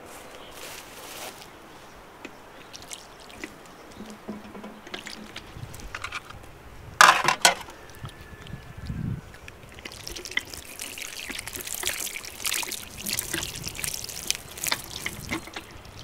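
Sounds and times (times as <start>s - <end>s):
water splashing onto hands: 2.5s - 6.0s, 8.8s - 16.0s
light knocks and clicks: 4.0s - 6.3s.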